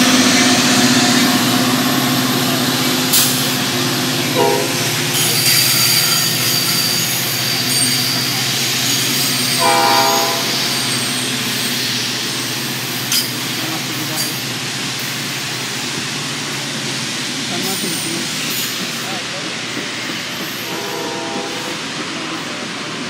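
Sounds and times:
train rolling on rails: 0.0 - 23.0
locomotive horn blasts: 4.3 - 5.0, 9.6 - 10.7, 20.6 - 21.8.

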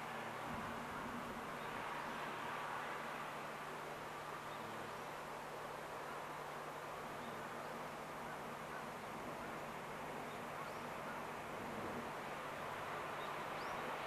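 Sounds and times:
distant locomotive engine hum: 0.0 - 14.0.

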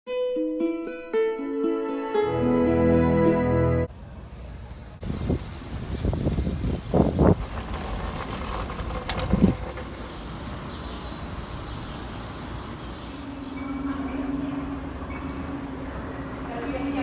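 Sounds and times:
traffic rumble: 3.9 - 17.0.

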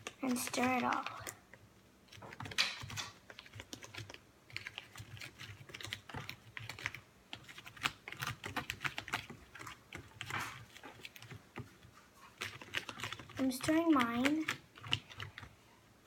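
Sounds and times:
spoon scraping plastic tray: 0.0 - 1.3.

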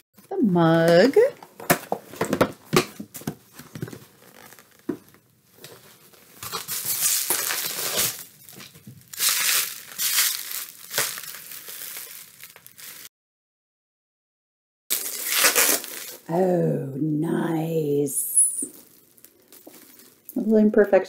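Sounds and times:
plastic packaging crinkling: 3.5 - 13.1, 14.9 - 16.3, 18.6 - 20.4.

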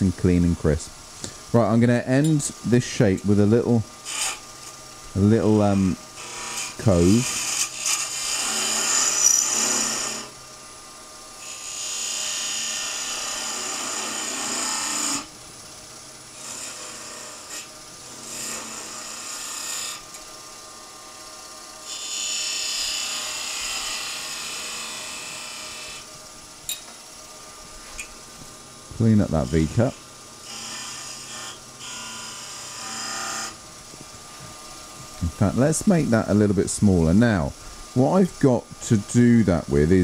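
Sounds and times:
lathe humming: 0.0 - 40.0
gouge scraping wood on lathe: 1.6 - 4.5, 5.3 - 10.4, 11.4 - 15.3, 16.4 - 20.0, 21.8 - 26.1, 29.0 - 34.0.

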